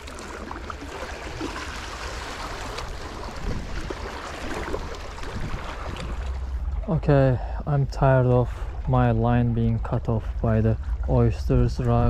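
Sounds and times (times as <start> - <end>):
small waves against rocks: 0.0 - 6.7
wind buffeting microphone: 2.8 - 7.2, 8.0 - 12.0.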